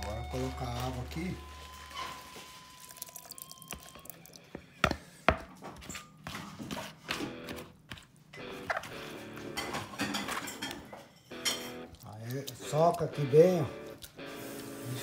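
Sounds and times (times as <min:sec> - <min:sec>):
water dripping and splashing: 0:02.8 - 0:04.5.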